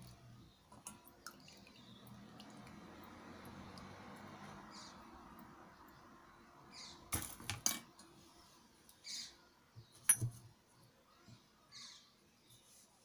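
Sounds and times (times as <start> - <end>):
oil trickling through sieve: 0.0 - 6.0.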